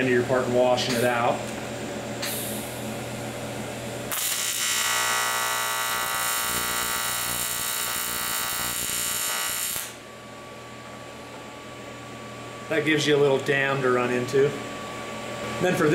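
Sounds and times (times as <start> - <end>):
welding arc buzzing: 4.1 - 10.0.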